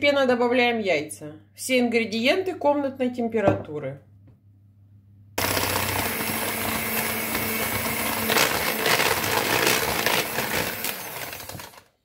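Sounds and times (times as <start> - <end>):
electric hand mixer whirring: 5.4 - 12.0.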